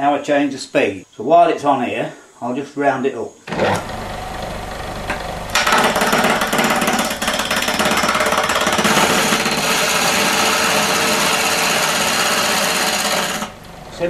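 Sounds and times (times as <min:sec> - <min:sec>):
chisel scraping wood on lathe: 0:05.0 - 0:13.6.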